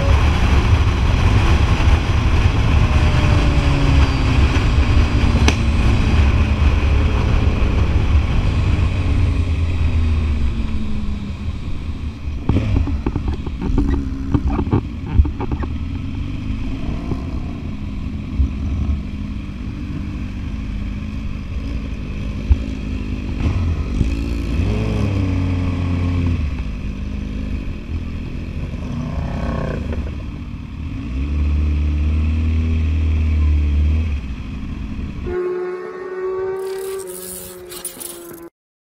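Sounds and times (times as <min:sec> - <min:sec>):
motorcycle engine revving: 0:00.0 - 0:34.4, 0:35.2 - 0:38.5.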